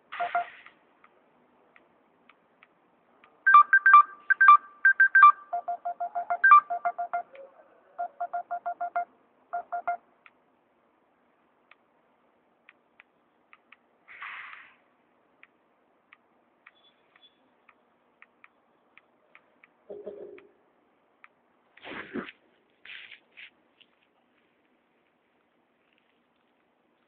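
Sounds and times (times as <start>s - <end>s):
electronic beeps tune: 0.2s - 0.6s, 3.5s - 7.4s, 8.0s - 10.0s
brief hiss: 14.1s - 14.8s.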